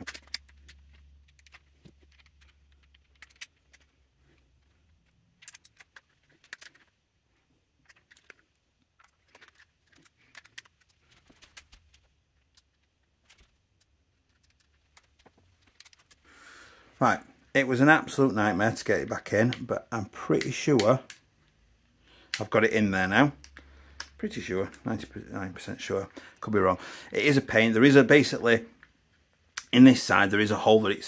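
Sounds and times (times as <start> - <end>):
plastic and metal parts clicking: 0.0 - 7.0, 7.6 - 16.3, 20.3 - 21.6.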